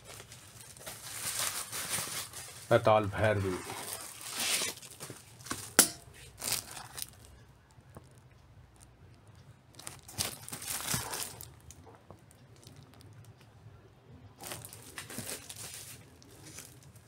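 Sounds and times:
cardboard record jacket rustling: 0.0s - 7.2s, 9.8s - 11.7s, 14.4s - 17.0s
plastic sleeve crinkling: 0.0s - 8.2s, 9.7s - 13.4s, 14.4s - 17.0s.

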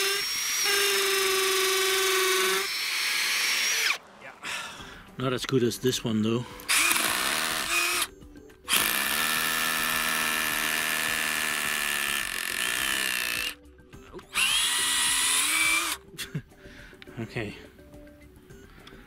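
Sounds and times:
cordless drill boring into concrete: 0.0s - 4.0s, 6.6s - 8.1s, 8.7s - 13.6s, 14.3s - 16.0s.

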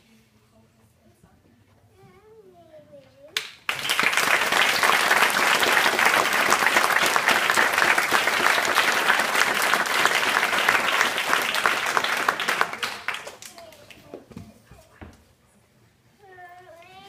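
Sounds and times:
audience applauding: 3.7s - 13.9s.

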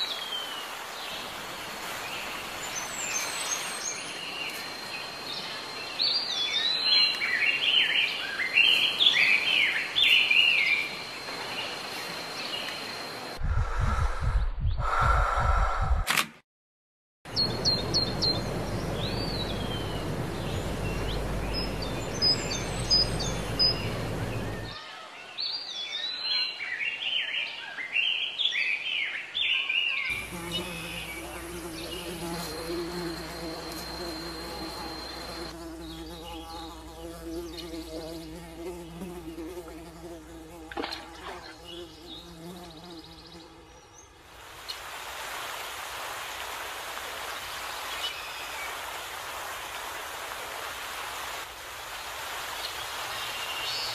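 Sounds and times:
birds chirping: 17.3s - 39.6s
insect buzzing: 17.4s - 24.8s, 30.1s - 44.1s.

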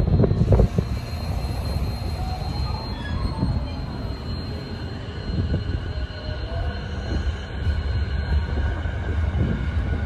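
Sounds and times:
electric train running noise: 0.0s - 10.0s.

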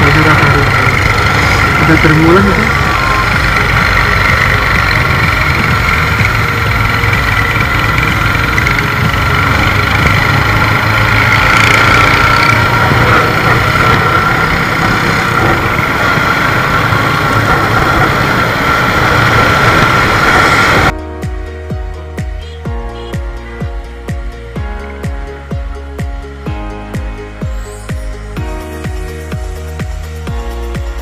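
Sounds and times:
traffic rumbling: 0.0s - 21.0s
motorcycle engine rumbling: 0.0s - 31.0s
wind rushing over microphone: 9.0s - 21.0s.

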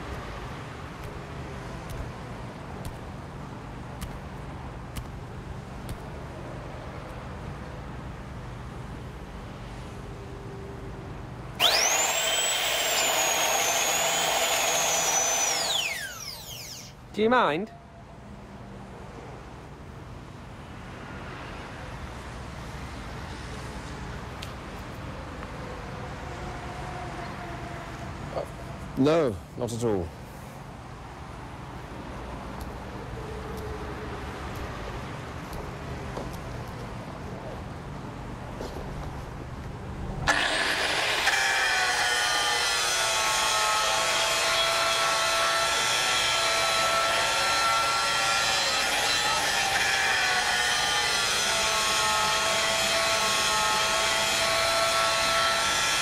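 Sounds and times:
angle grinder cutting metal: 11.6s - 17.0s, 40.3s - 56.0s.

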